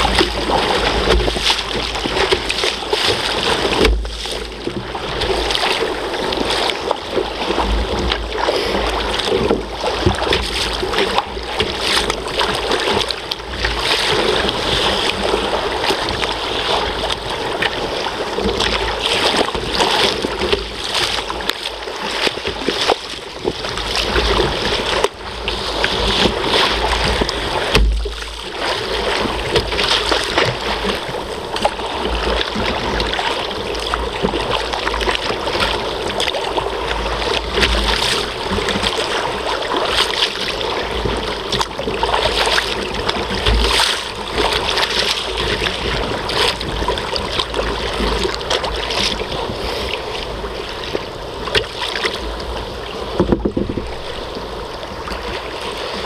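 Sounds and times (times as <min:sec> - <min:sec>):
sea water slapping against kayak hull: 0:00.0 - 0:56.0
wind buffeting microphone: 0:22.4 - 0:56.0.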